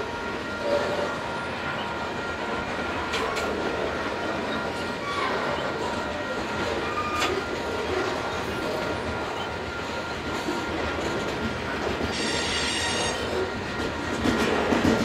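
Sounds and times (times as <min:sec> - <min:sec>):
freight train wheels on rail: 0:00.0 - 0:15.0
high-pitched wheel squeal: 0:06.8 - 0:07.4.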